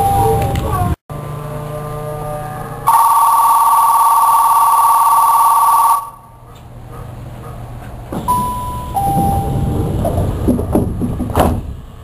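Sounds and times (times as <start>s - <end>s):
two-tone departure bell ringing: 0.0s - 0.5s, 2.3s - 6.2s, 8.3s - 9.8s.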